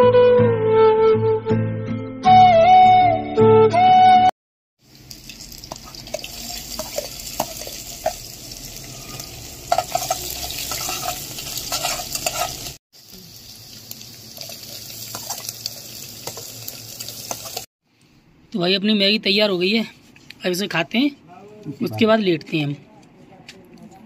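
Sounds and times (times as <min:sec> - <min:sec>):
chillies sizzling in hot oil: 0:04.8 - 0:17.7
metal spoon scraping a pot: 0:08.8 - 0:12.8.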